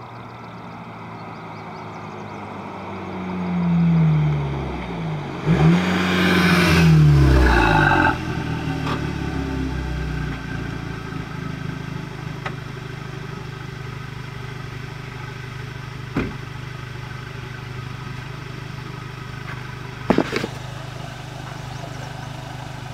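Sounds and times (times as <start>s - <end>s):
car engine idling: 0.0s - 22.9s.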